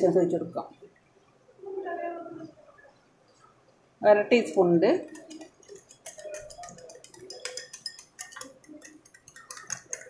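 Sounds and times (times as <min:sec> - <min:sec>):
whisk clicking against glass bowl: 0:05.0 - 0:10.0.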